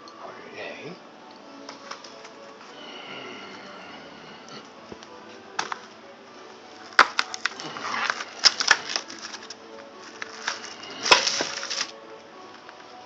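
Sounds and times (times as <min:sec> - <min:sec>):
plastic tray snapping: 0:05.6 - 0:05.9, 0:06.8 - 0:11.9
cardboard carton crackling: 0:06.7 - 0:12.0.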